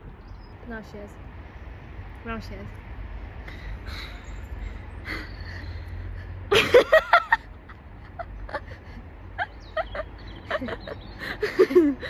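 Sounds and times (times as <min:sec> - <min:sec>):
person laughing: 0:06.5 - 0:12.0.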